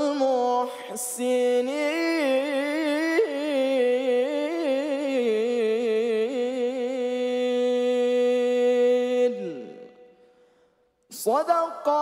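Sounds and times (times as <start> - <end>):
man reciting melodically: 0.0 - 10.3, 10.9 - 12.0.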